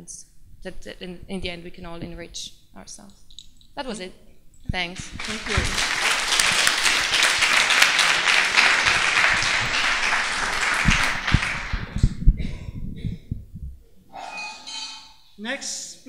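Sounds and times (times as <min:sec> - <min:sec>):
audience applauding: 0:05.0 - 0:12.2
low thumps: 0:08.7 - 0:14.1.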